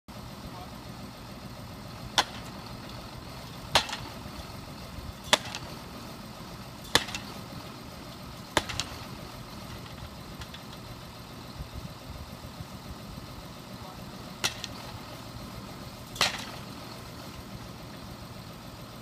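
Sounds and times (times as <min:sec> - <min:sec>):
tractor engine idling: 0:00.1 - 0:19.0
post driver hammering post: 0:02.1 - 0:03.0, 0:03.6 - 0:04.3, 0:05.2 - 0:05.7, 0:06.8 - 0:07.5, 0:08.5 - 0:10.8, 0:14.4 - 0:15.1, 0:16.1 - 0:16.7.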